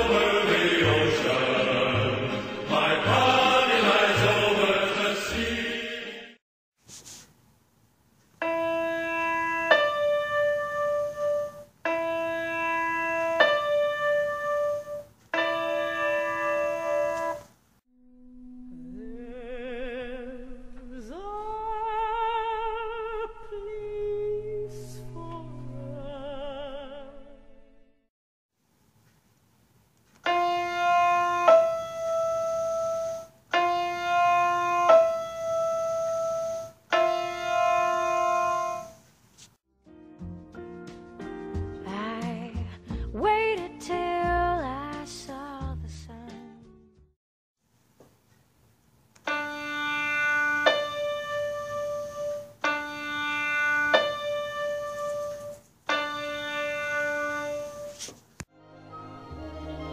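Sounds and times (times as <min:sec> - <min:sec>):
piano playing octave notes: 0:08.4 - 0:17.5, 0:30.3 - 0:39.0, 0:49.3 - 0:58.0.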